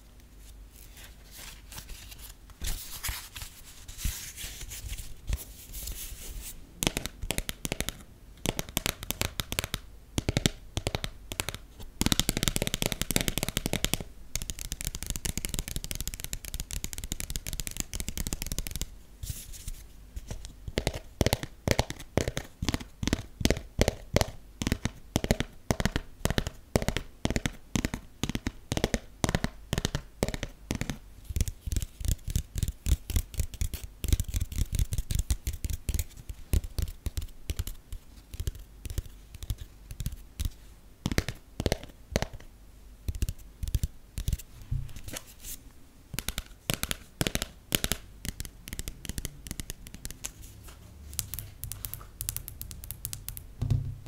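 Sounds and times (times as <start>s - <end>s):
fingernails tapping on passport: 46.2s - 50.3s.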